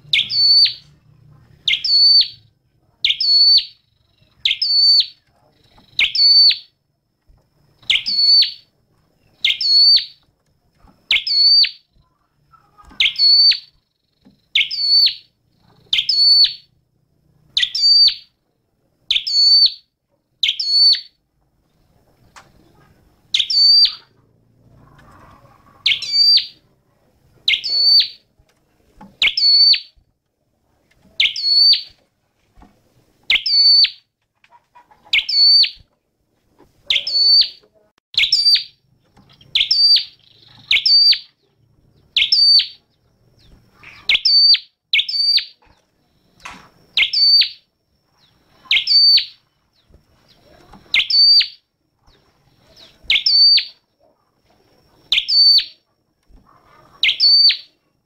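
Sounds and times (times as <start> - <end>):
bird calling: 25.0 - 26.6, 36.9 - 41.4, 43.4 - 45.6, 50.3 - 51.6, 56.7 - 57.8.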